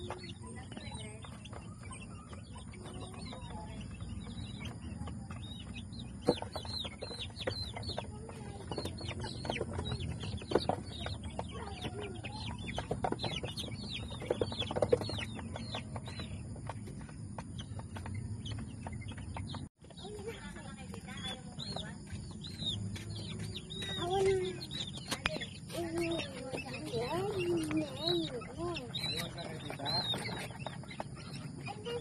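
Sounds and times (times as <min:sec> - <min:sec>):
chicks peeping: 0:00.0 - 0:32.0.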